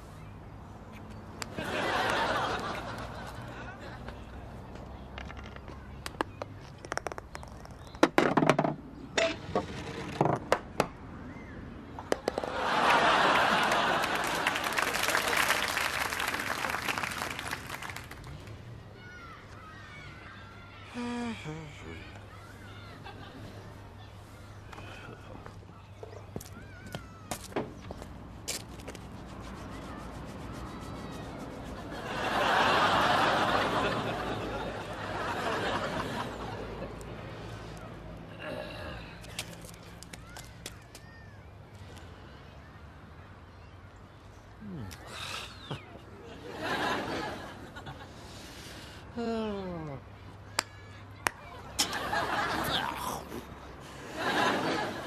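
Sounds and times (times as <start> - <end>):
audience laughter: 1.6 - 4.2, 12.4 - 15.7, 31.7 - 37.0, 45.6 - 48.1, 51.6 - 52.8, 53.8 - 55.0.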